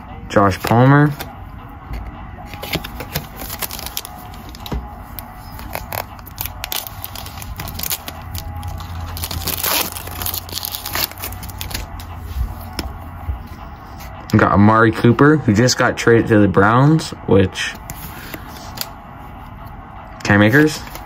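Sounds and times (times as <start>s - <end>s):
cards and plastic wrapper crinkling: 2.5s - 12.8s.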